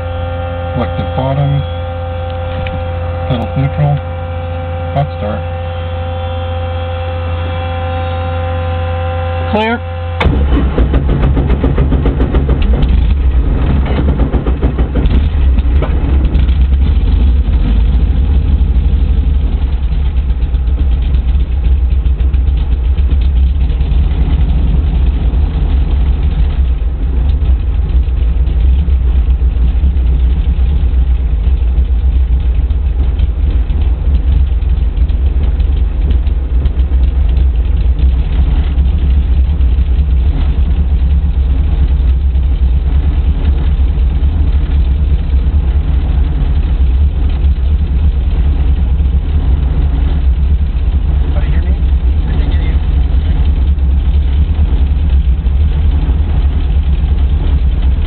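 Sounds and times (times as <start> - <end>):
helicopter piston engine idling: 0.0 - 58.0.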